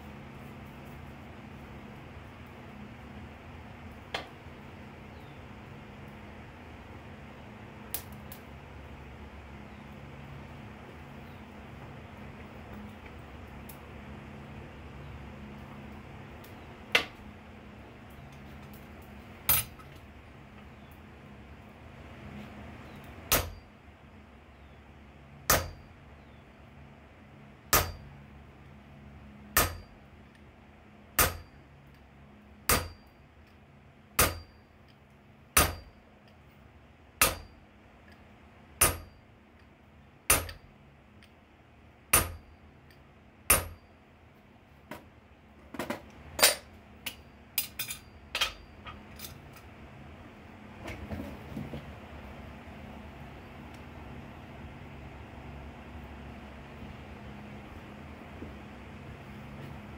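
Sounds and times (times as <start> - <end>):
hammer striking punch on anvil: 23.3 - 23.7, 25.5 - 25.9, 27.7 - 28.1, 29.6 - 30.0, 31.2 - 31.6, 32.7 - 33.1, 34.2 - 34.6, 35.6 - 36.0, 37.2 - 37.6, 38.8 - 39.2, 40.3 - 40.6, 42.1 - 42.5, 43.5 - 43.9.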